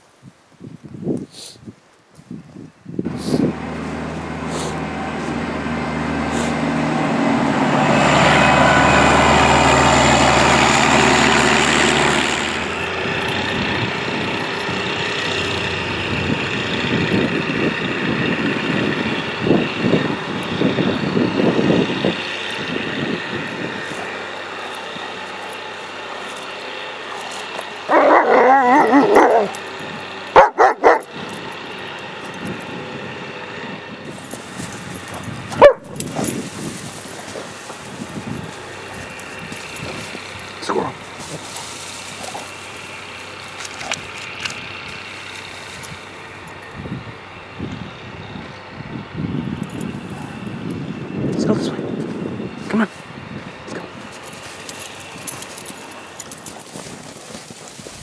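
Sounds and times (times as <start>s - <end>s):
vehicle engine running: 3.0s - 58.0s
dog barking: 27.9s - 29.6s, 30.4s - 31.1s, 35.6s - 36.0s.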